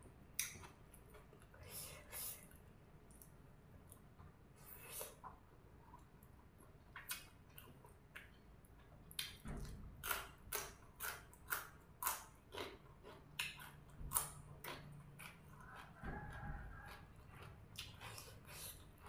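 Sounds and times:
crunchy vegetable chewing: 0:10.0 - 0:19.0.

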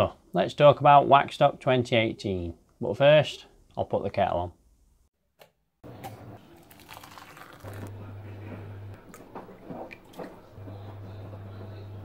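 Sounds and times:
kettle element humming: 0:05.9 - 0:12.0
milk pouring into mug: 0:06.4 - 0:08.1
water crackling in kettle: 0:06.6 - 0:08.0.

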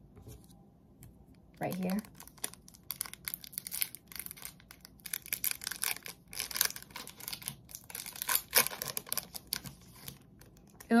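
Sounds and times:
wrapper tearing and crinkling: 0:01.6 - 0:10.9.

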